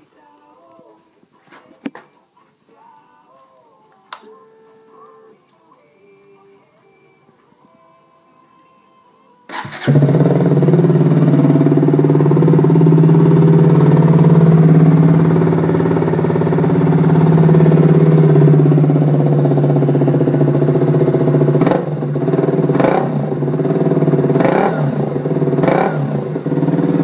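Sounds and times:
motorcycle engine idling and revving: 0:09.5 - 0:27.0.

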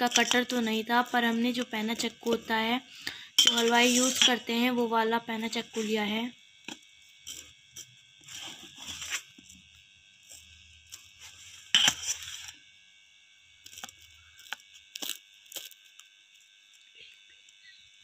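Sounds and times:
knife scraping on plate: 0:03.4 - 0:04.4, 0:11.7 - 0:12.5.

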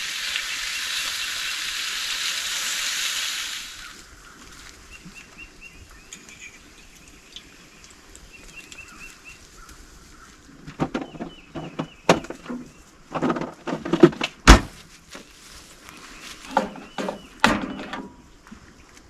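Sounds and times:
bird chirping: 0:04.9 - 0:13.0, 0:15.9 - 0:18.3
knocks and clattering: 0:10.6 - 0:14.8, 0:16.5 - 0:18.2.

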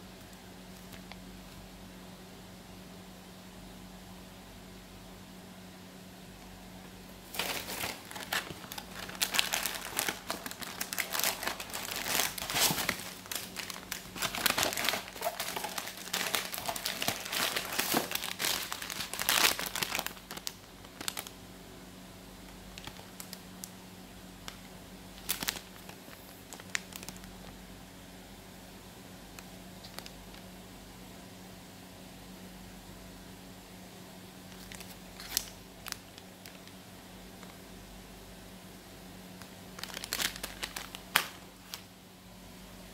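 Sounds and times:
faint low hum: 0:00.0 - 0:42.9
plastic packaging crinkling: 0:00.7 - 0:01.2, 0:07.2 - 0:21.4, 0:22.7 - 0:23.7, 0:25.2 - 0:27.6, 0:29.8 - 0:30.4, 0:34.5 - 0:36.8, 0:39.4 - 0:41.9.

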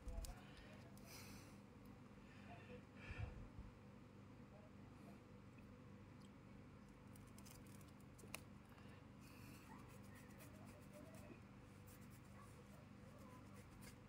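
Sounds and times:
faint ticks and scratches: 0:00.0 - 0:01.1, 0:06.9 - 0:08.5, 0:09.4 - 0:14.0
low steady hum: 0:00.0 - 0:14.0.

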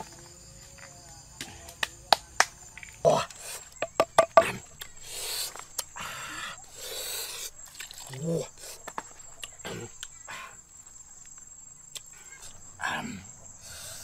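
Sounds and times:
insects chirping: 0:00.0 - 0:14.0
pestle knocking in clay mortar: 0:03.8 - 0:04.6.

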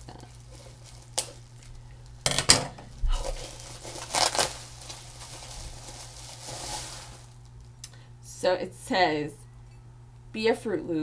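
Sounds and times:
packing wrap rustling: 0:00.0 - 0:02.2, 0:02.9 - 0:07.8.

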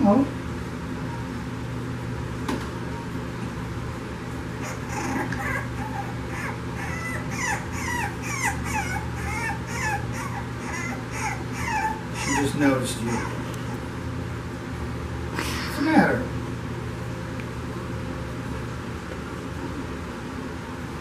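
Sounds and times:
puppy whimpering: 0:04.6 - 0:13.9.

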